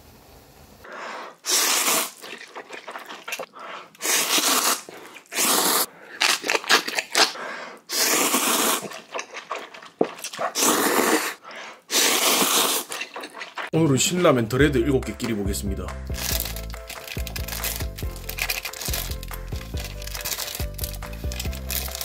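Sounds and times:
man slurping noodles: 0:01.4 - 0:13.7
wet mouth sounds: 0:01.4 - 0:13.8, 0:16.0 - 0:22.0.

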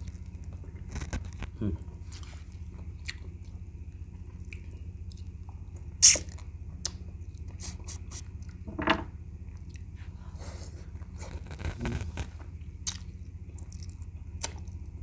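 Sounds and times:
steady low hum: 0:00.0 - 0:15.0
person sucking and chewing meat: 0:06.0 - 0:08.2.

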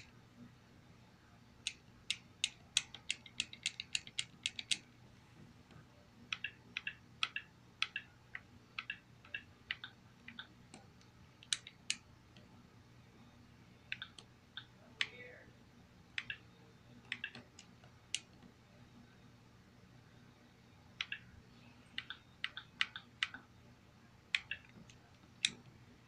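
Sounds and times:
remote buttons clicking: 0:01.6 - 0:04.9, 0:06.3 - 0:08.1, 0:08.8 - 0:12.5, 0:13.9 - 0:15.2, 0:16.2 - 0:18.4, 0:21.0 - 0:21.3, 0:22.0 - 0:23.5, 0:24.3 - 0:25.7.

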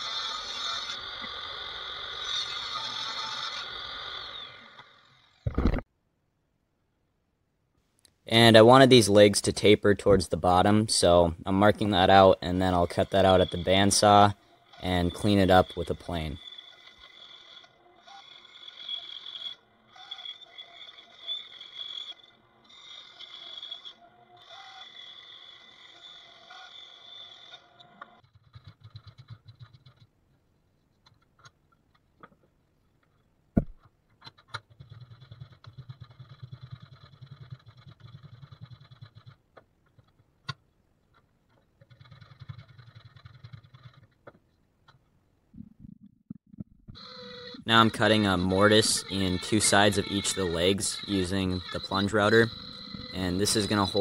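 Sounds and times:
bandsaw cutting wood: 0:00.0 - 0:05.3, 0:10.0 - 0:28.2, 0:47.0 - 0:54.0
hand plane scraping strokes: 0:11.8 - 0:28.6, 0:47.0 - 0:54.0.

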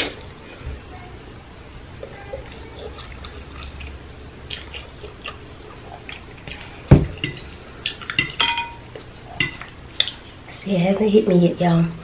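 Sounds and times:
fork clinking against glass dish: 0:07.2 - 0:08.8, 0:09.4 - 0:09.7.

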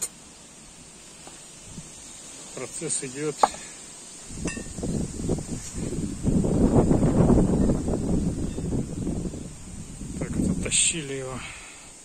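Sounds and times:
wind buffeting microphone: 0:04.2 - 0:11.6.

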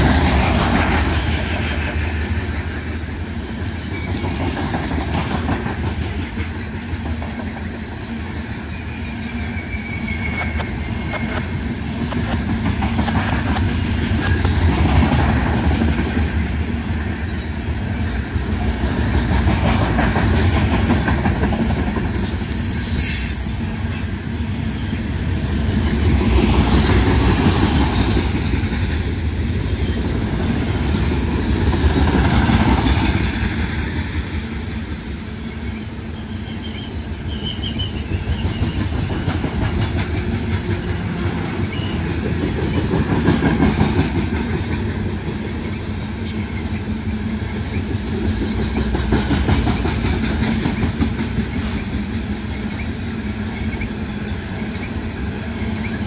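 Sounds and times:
wheels clacking over rail joints: 0:00.0 - 0:16.6, 0:18.2 - 0:23.2, 0:25.3 - 0:52.9
train wheels rumbling on rails: 0:00.0 - 0:56.0
high wheel squeal: 0:08.0 - 0:11.7, 0:34.5 - 0:39.5, 0:41.6 - 0:42.2.

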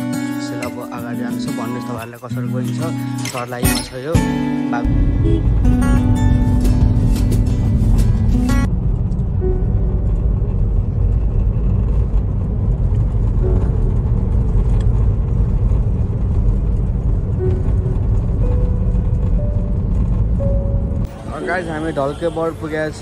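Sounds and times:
background music: 0:00.0 - 0:11.2, 0:13.2 - 0:23.0
car engine and tyre rumble: 0:04.8 - 0:23.0.

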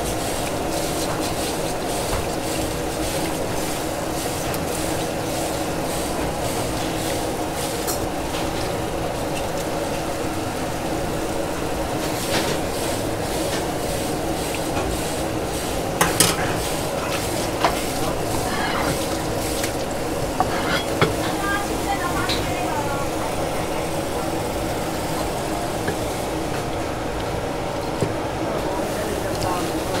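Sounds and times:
busy market din: 0:15.9 - 0:30.0.

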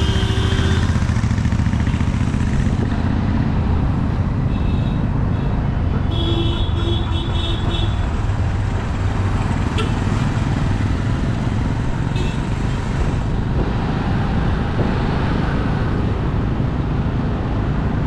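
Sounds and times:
vehicle horn honks: 0:00.0 - 0:01.0, 0:06.1 - 0:08.0
road traffic rumble: 0:00.0 - 0:18.0.

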